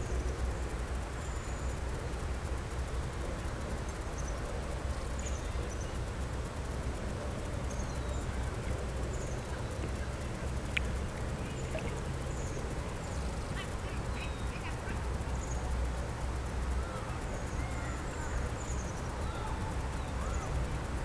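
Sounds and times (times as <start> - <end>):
low outdoor rumble: 0.0 - 21.0
faint bird chirps: 4.0 - 6.1, 7.5 - 15.8, 16.4 - 20.8.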